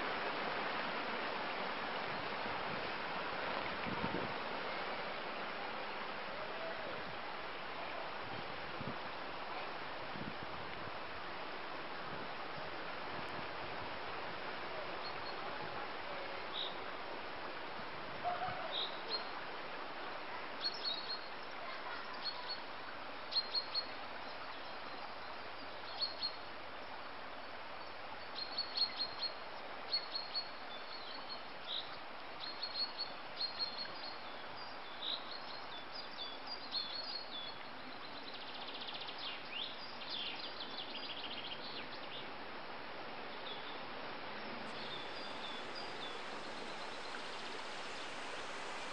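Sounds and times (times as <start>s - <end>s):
steady hiss: 43.9s - 48.9s.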